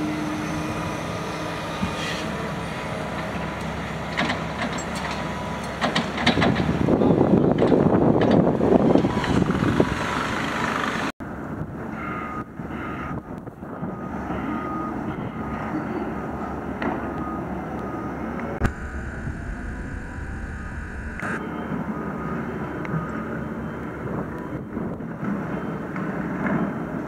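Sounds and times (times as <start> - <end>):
excavator running: 0.0 - 27.0
reversing alarm beeping: 12.0 - 24.8.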